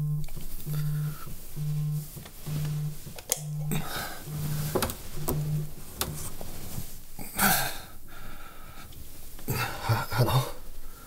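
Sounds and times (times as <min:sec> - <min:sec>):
mobile phone ringing: 0:00.0 - 0:06.3
man grunting sleepily: 0:03.6 - 0:04.2, 0:09.5 - 0:10.6.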